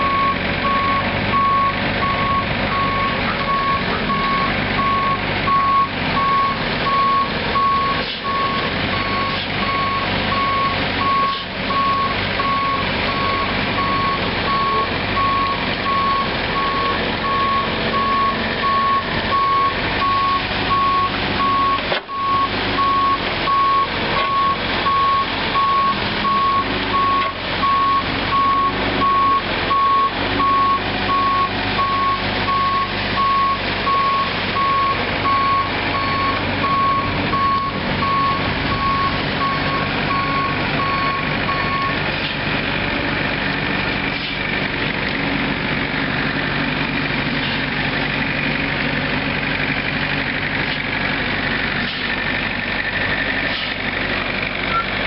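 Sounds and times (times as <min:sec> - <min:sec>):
reversing alarm beeping: 0:00.0 - 0:42.0, 0:54.7 - 0:54.9
diesel excavator running: 0:00.0 - 0:55.0.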